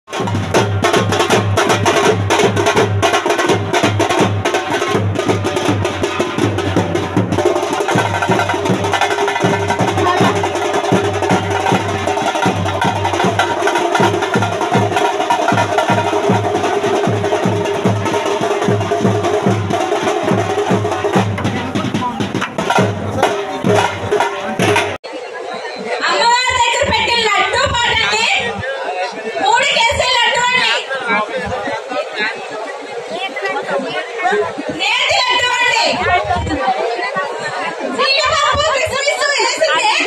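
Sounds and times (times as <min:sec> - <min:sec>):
fast drum beat: 0:00.1 - 0:25.0.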